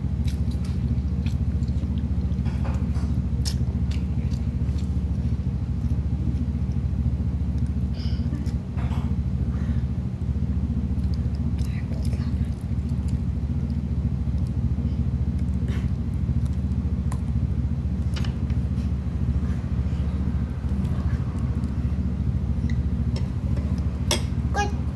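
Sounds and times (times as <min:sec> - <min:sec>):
steady low hum: 0:00.0 - 0:24.9.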